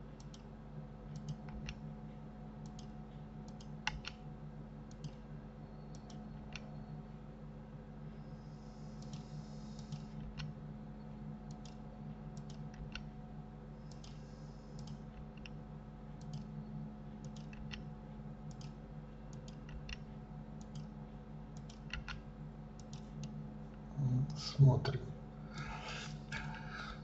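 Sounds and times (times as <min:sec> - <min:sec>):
steady low hum: 0:00.0 - 0:27.0
mouse and keyboard clicks: 0:17.2 - 0:17.8, 0:18.5 - 0:20.0, 0:21.6 - 0:22.2.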